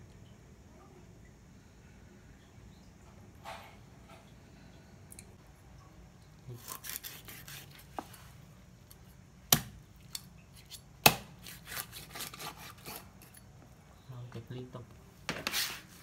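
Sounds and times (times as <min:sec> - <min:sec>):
knife scraping fish: 0:06.5 - 0:08.3, 0:11.4 - 0:13.4.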